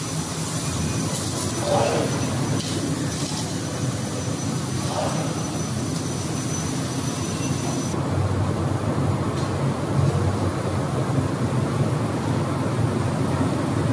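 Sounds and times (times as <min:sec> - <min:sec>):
laser cutter rushing hiss: 0:00.0 - 0:08.0.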